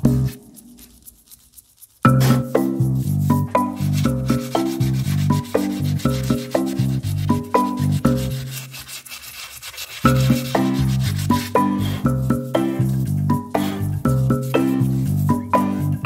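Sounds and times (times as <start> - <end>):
hand sanding metal rim: 0.0 - 15.6
mallet melody background music: 2.0 - 8.7, 10.0 - 16.0.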